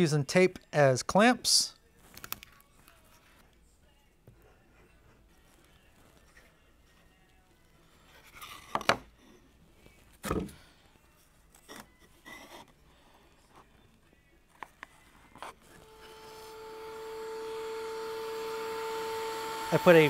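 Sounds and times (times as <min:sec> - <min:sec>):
router motor whine: 0:15.8 - 0:20.0.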